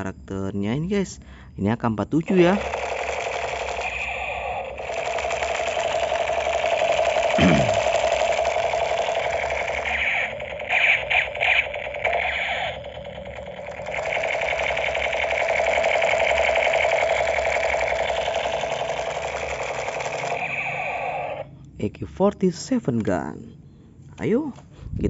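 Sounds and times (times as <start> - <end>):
toy gun electronic firing buzz: 2.3 - 21.5.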